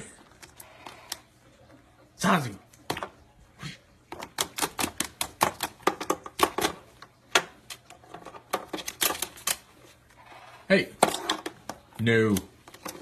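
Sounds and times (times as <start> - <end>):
bird tapping on hard plastic: 4.1 - 9.5.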